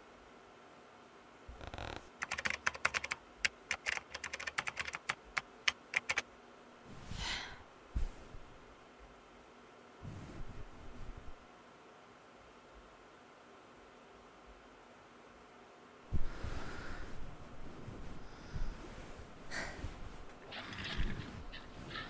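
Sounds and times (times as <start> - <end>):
typing on laptop keyboard: 1.7 - 6.2.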